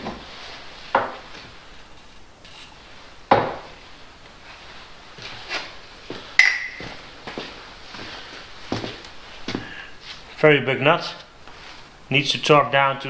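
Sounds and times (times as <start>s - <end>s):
sharp ringing clink: 6.4s - 6.8s.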